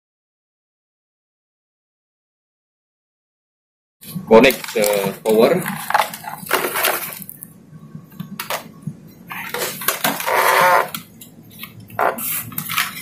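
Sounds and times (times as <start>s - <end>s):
cable rustling: 4.0s - 7.5s, 9.3s - 13.0s.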